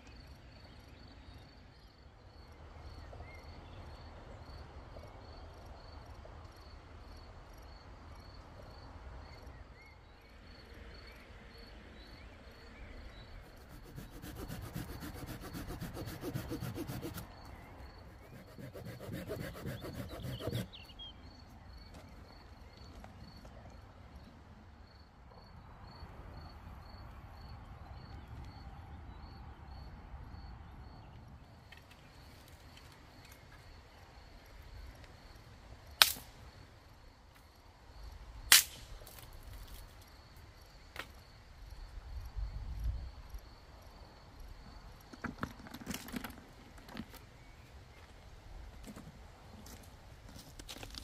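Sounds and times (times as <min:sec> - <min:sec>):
high insect trill: 0:10.4 - 0:22.4
loud sharp cracks: 0:36.0 - 0:36.3, 0:38.5 - 0:38.9.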